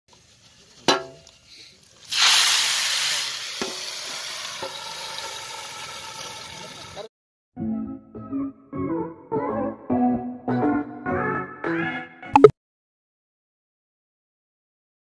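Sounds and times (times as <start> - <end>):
hot oil sizzling in a pot: 0.1 - 7.1.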